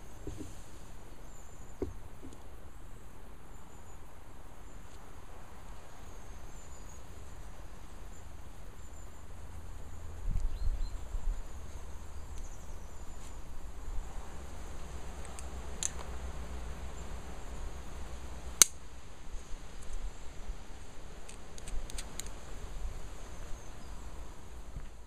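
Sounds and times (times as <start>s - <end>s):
steady hiss: 0.0s - 25.0s
wind rumble on microphone: 5.2s - 18.5s.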